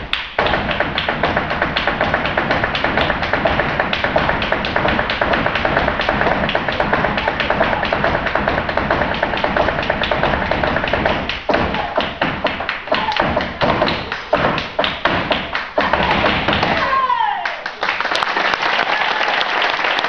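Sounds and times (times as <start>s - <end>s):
dance shoes tapping on wooden stage: 0.0s - 17.1s.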